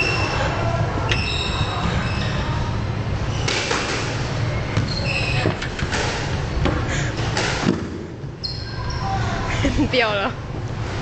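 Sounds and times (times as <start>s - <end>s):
squash ball strikes: 5.8s - 8.2s.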